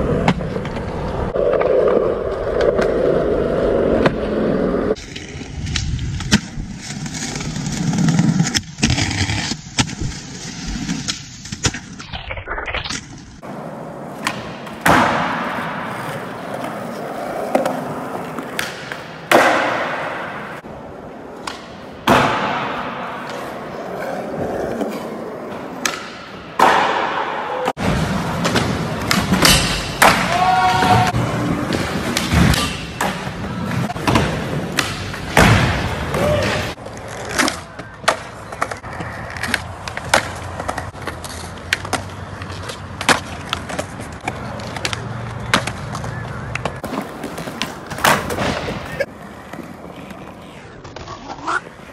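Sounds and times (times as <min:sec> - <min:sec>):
skateboard wheels rolling on pavement: 0:00.0 - 0:12.2, 0:12.8 - 0:26.9, 0:27.5 - 0:51.9
skateboard clacking: 0:13.4 - 0:27.6, 0:36.2 - 0:51.9.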